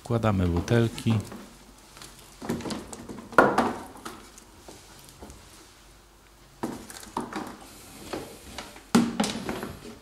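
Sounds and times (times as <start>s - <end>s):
plastic bottles knocking in tub: 2.4s - 4.2s, 8.9s - 9.8s.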